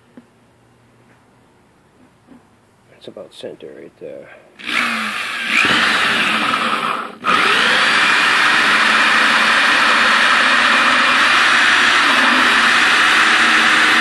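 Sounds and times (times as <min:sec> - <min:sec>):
electric drill cutting plastic: 0:04.6 - 0:14.0.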